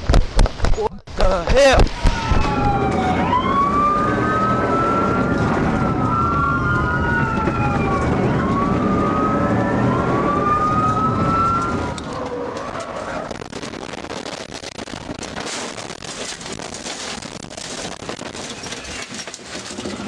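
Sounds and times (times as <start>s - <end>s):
car driving noise: 1.5s - 20.0s
police sirens wailing: 1.8s - 14.1s.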